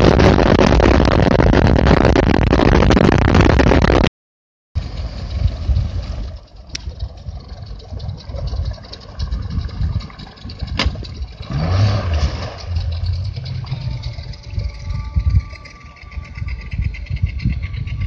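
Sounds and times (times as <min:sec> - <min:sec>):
outboard motor idling and revving: 0:04.8 - 0:18.0.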